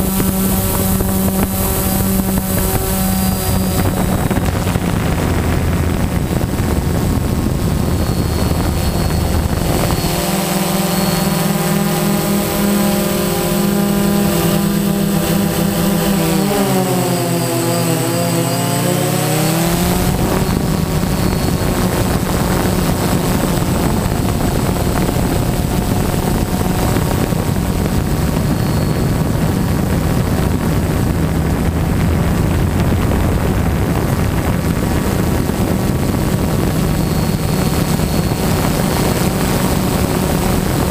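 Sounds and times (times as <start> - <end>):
drone propellers buzzing: 0.0 - 40.9
higher tones: 0.3 - 18.6.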